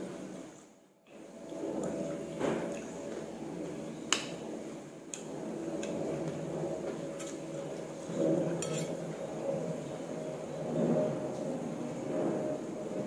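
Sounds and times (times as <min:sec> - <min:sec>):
metal spoon clinking on ceramic bowl: 0:08.6 - 0:09.0.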